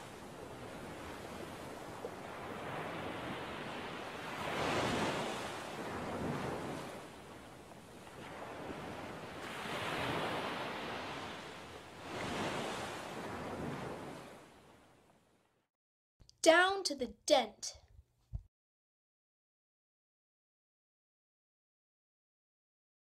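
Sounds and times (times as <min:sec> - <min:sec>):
ocean waves washing in: 0:00.0 - 0:15.0.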